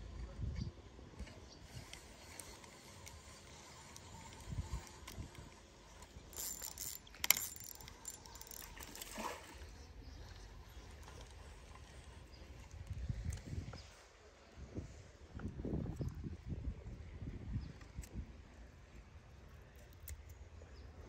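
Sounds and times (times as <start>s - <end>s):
fishing reel gears whirring: 1.2s - 13.5s.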